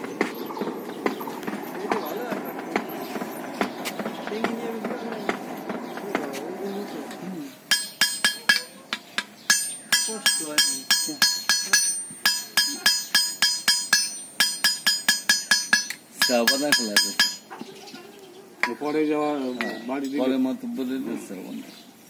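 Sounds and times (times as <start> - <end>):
hammer striking iron on anvil: 7.7 - 17.4.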